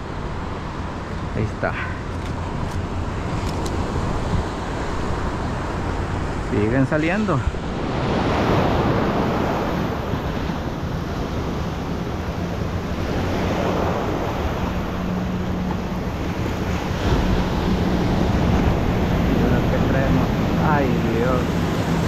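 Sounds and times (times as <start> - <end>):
surf breaking and washing in: 0.0 - 22.0.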